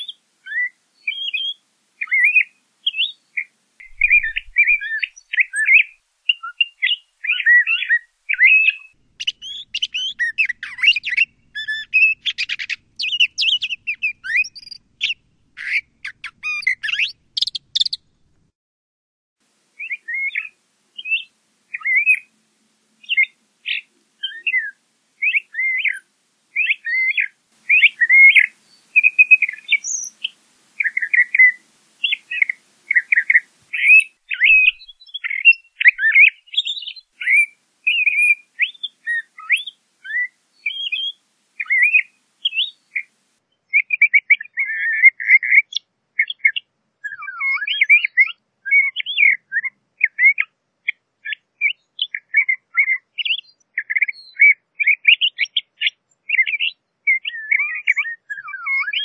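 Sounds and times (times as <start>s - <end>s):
thrasher singing: 3.8s - 5.8s.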